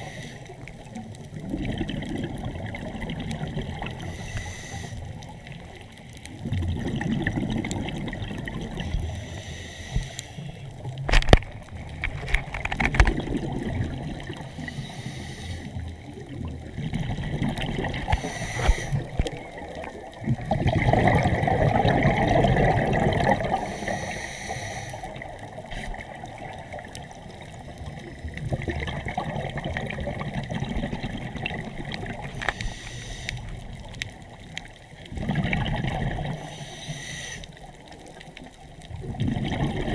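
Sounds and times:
water sloshing and trickling: 0:10.8 - 0:14.7, 0:15.8 - 0:23.8.

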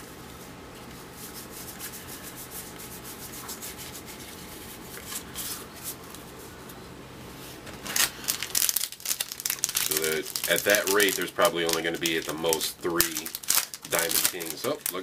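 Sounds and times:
cards shuffling and flicking: 0:09.8 - 0:15.0.

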